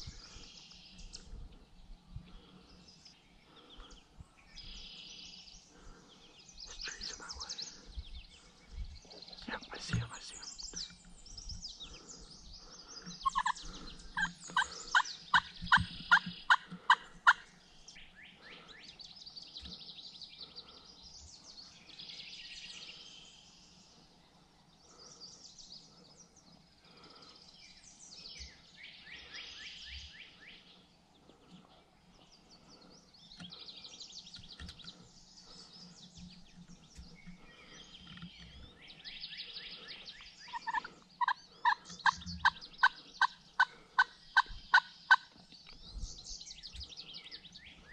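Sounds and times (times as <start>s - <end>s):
small birds chirping: 0.0s - 47.9s
wild turkey calling: 11.8s - 18.5s, 37.3s - 45.4s.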